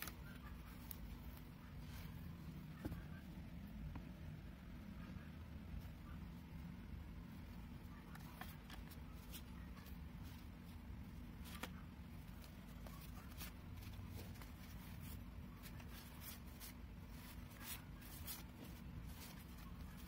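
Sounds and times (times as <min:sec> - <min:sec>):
picture cards rustling and clicking: 0:00.0 - 0:03.2, 0:07.6 - 0:20.0
steady low hum: 0:00.0 - 0:20.0.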